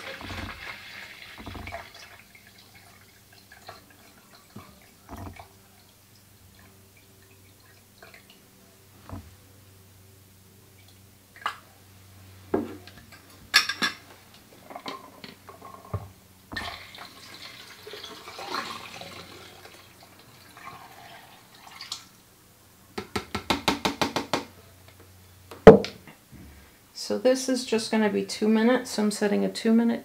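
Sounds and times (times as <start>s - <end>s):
liquid pouring into a tank: 0.0s - 8.4s, 16.5s - 22.2s
plastic containers knocking: 1.4s - 1.9s, 4.6s - 5.4s, 23.0s - 24.5s.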